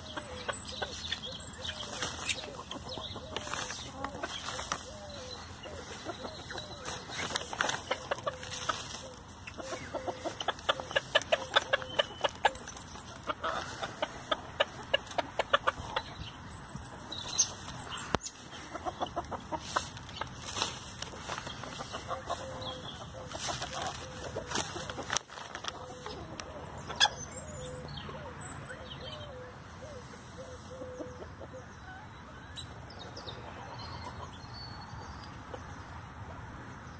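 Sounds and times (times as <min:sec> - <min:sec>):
chickens pecking grass: 0:00.0 - 0:28.2
chickens clucking softly: 0:00.0 - 0:28.4, 0:29.0 - 0:36.9.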